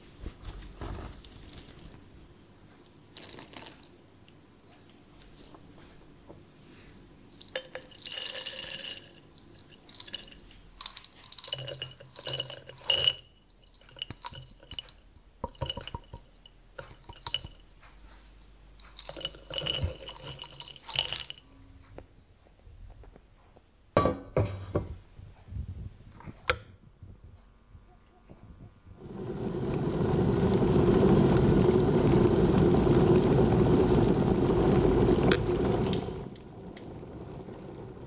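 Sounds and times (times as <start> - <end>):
wax pieces rattling in glass jar: 3.2 - 4.0, 7.4 - 17.7, 18.8 - 21.4.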